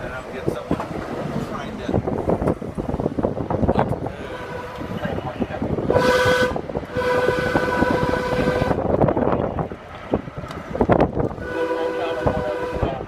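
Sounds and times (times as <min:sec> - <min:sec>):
trolley running on rail: 0:00.0 - 0:13.0
wheels clicking on track: 0:00.0 - 0:13.0
wind buffeting window: 0:00.0 - 0:13.0
trolley horn tone: 0:04.0 - 0:09.5, 0:11.2 - 0:13.0.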